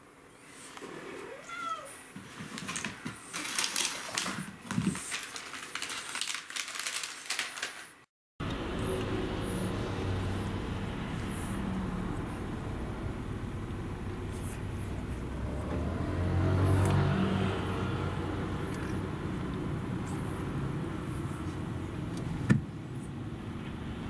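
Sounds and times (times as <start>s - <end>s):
cat meowing: 1.3s - 2.0s.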